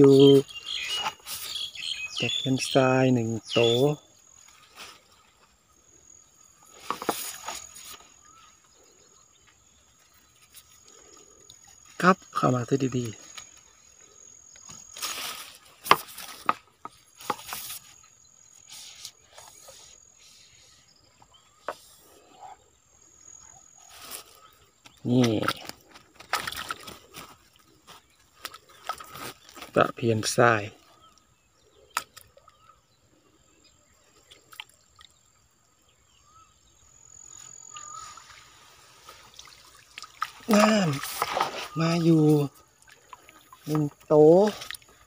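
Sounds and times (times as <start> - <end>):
high insect trill: 0.0 - 45.0
water splashing and dripping: 24.0 - 29.9, 37.7 - 45.0.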